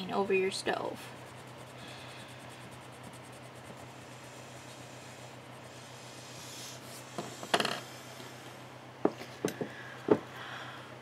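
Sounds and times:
pencil strokes on paper: 0.0 - 7.2
rubbing scrape on paper: 0.9 - 7.1.

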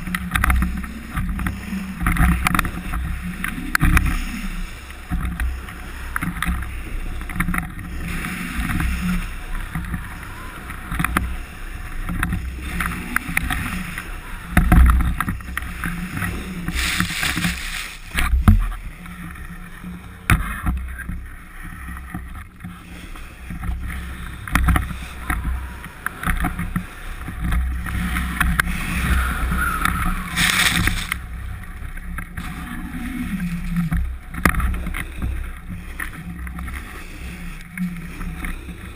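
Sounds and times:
snowboard scraping over snow: 15.2 - 19.5, 27.7 - 31.3
wind buffeting microphone: 24.2 - 34.5.

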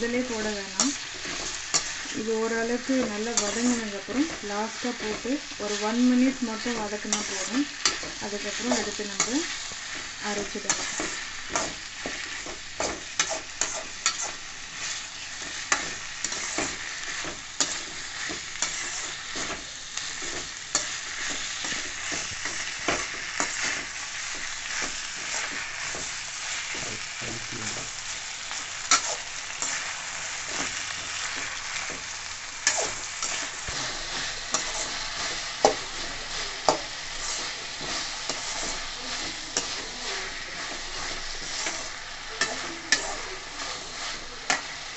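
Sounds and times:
vegetables sizzling in oil: 0.0 - 44.9
metal ladle scraping pan: 32.6 - 35.8.

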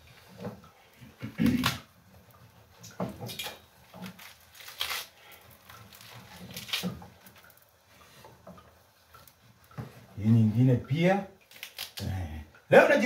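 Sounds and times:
stems snapping: 3.3 - 7.6, 11.4 - 12.2
leaves rustling: 3.9 - 8.2.

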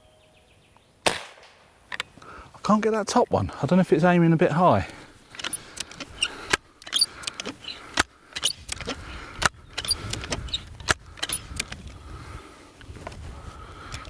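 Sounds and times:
air rifle metallic clicks: 1.1 - 2.2, 4.8 - 12.0.

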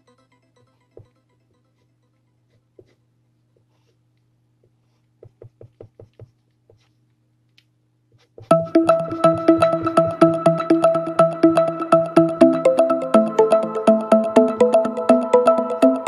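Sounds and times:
pencil shading on paper: 1.0 - 7.0
quick taps: 4.6 - 6.9.

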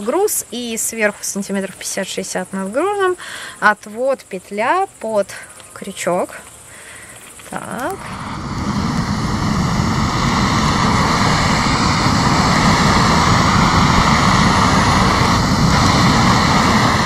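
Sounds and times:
gas torch flame roaring: 7.6 - 17.0.

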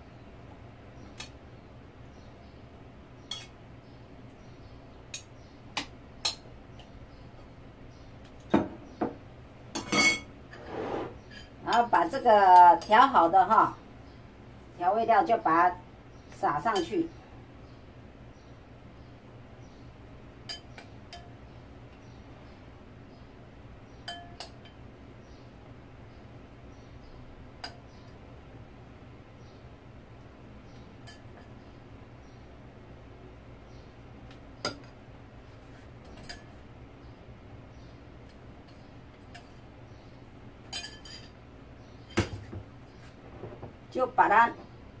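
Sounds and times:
metal spoon clinking on dishes: 3.3 - 3.6, 9.8 - 10.3, 24.0 - 24.8, 40.7 - 41.4.

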